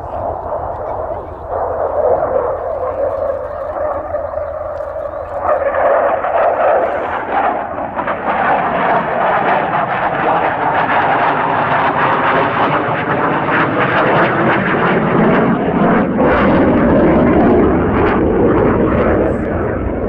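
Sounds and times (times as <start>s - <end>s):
jet engine roaring with crackle: 0.0s - 20.0s.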